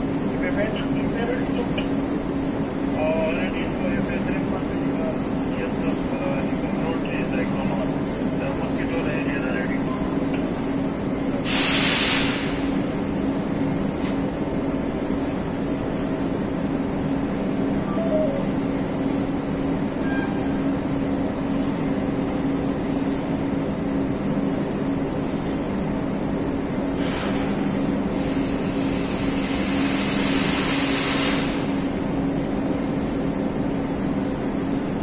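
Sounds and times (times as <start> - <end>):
industrial machinery humming: 0.0 - 35.0
hiss: 11.4 - 12.7, 27.0 - 31.8.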